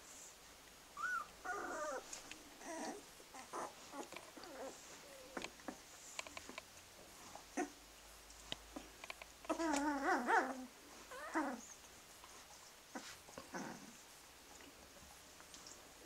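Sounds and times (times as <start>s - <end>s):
puppies whimpering: 1.0s - 5.8s
faint clicks: 8.3s - 9.9s.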